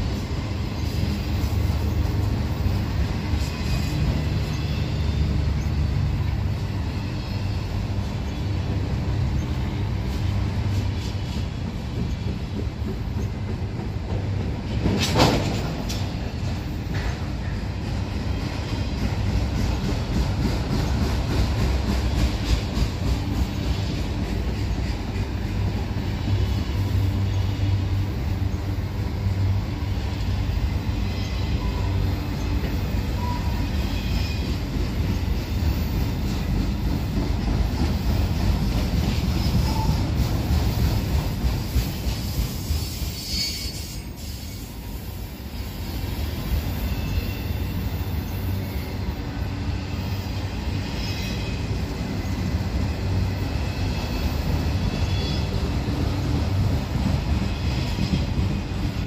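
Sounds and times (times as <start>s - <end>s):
freight train rumble and clatter: 0.0s - 59.0s
high wheel squeals: 42.7s - 44.8s, 46.7s - 49.1s.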